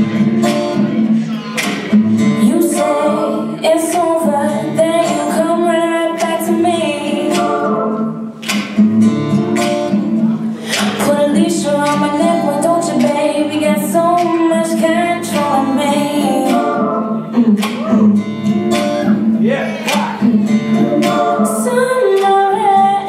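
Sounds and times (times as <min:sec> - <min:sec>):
swing jazz song with singer: 0:10.6 - 0:17.9, 0:20.2 - 0:23.0.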